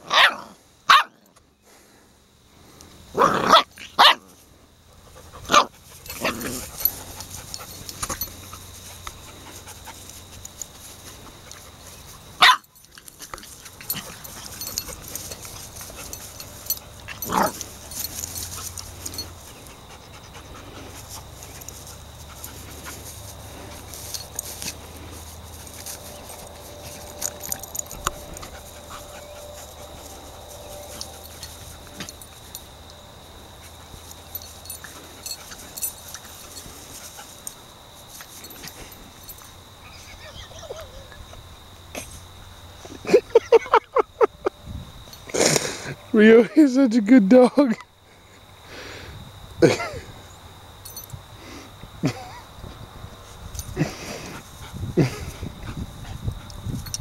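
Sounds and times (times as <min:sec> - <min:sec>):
dogs play barking: 0:00.0 - 0:01.4, 0:03.1 - 0:43.7.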